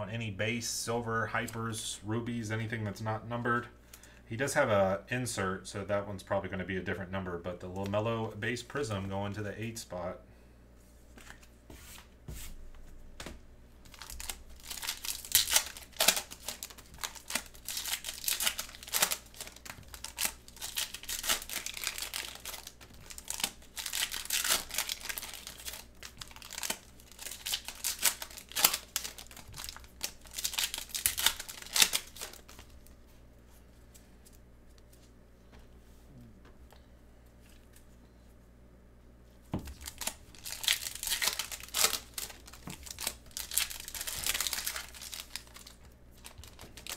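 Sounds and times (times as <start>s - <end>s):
foil wrappers crinkling: 13.8s - 33.0s, 39.6s - 46.9s.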